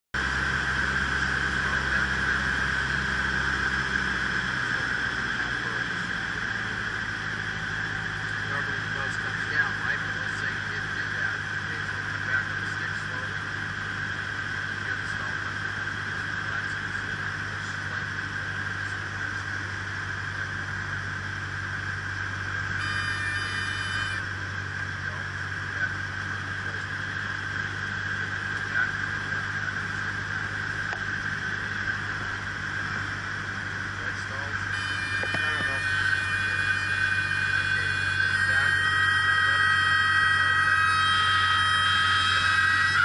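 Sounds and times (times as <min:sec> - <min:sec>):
propeller plane engine drone: 0:00.2 - 0:43.0
brief buzzing tone: 0:22.6 - 0:25.2, 0:34.6 - 0:43.0.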